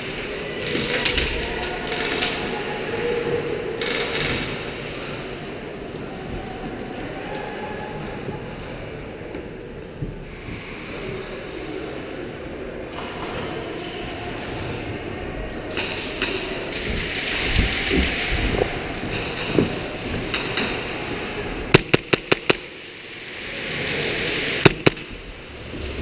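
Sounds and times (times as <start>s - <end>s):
airsoft gun shots: 21.7s - 22.8s, 24.6s - 25.2s.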